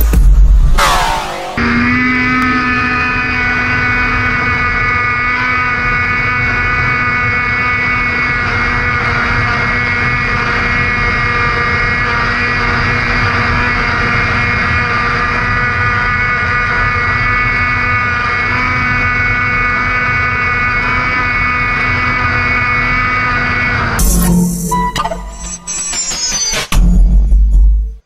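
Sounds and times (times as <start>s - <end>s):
snowmobile engine running: 0.8s - 24.2s.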